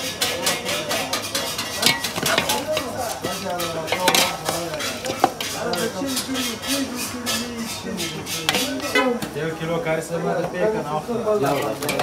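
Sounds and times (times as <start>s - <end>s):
metal ladle scraping metal pot: 0.0s - 9.3s
meat stirred in hot fat: 0.0s - 10.1s.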